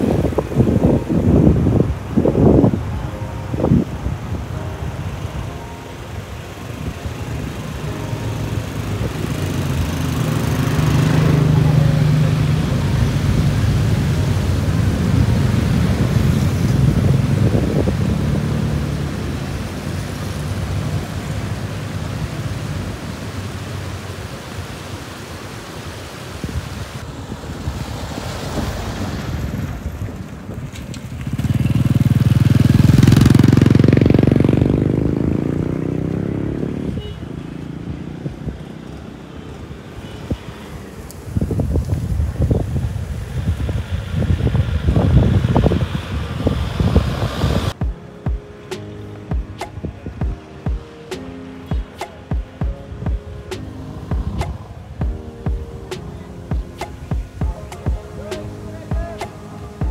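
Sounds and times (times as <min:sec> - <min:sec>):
vehicle engines running: 0:06.4 - 0:25.0, 0:28.0 - 0:47.8.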